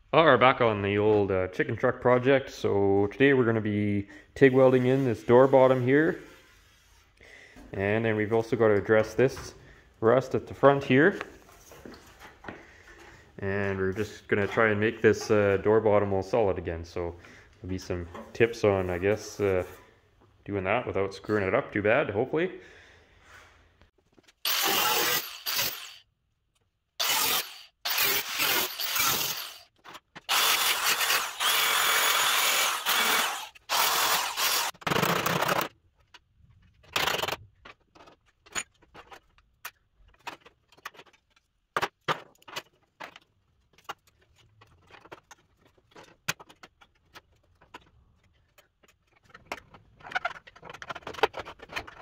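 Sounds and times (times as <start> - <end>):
power tool on sheet metal: 24.5 - 26.0, 27.0 - 29.7, 30.3 - 35.7.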